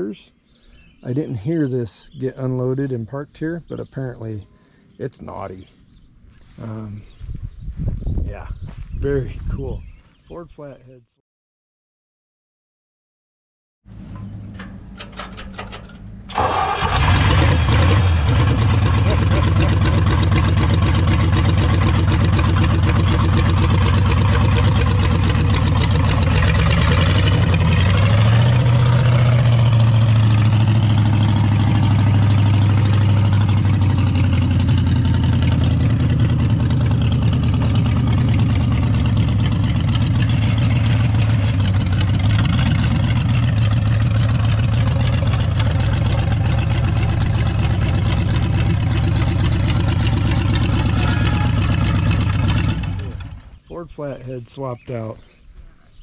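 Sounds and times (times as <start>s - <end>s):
car engine revving through open headers: 16.3s - 53.4s.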